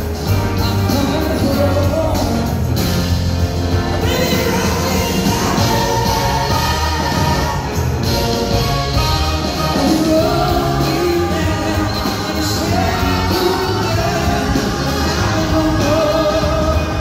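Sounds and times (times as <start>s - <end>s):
drums: 0.0s - 17.0s
woman singing lead: 3.8s - 8.5s.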